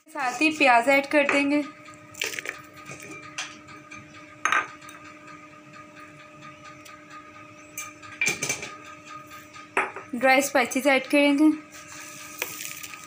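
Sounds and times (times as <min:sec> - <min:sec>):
crockery knocking on hard surface: 0:09.8 - 0:10.1.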